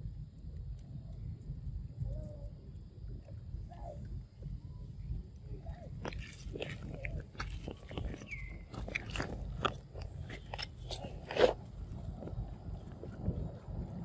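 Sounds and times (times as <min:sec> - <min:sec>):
monkey chewing fruit: 0:05.9 - 0:14.0.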